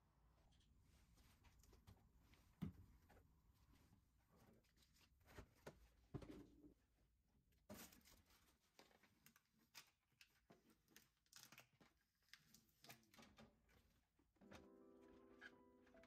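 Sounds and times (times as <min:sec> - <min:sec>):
plastic rustling and clicking: 0:07.7 - 0:13.9.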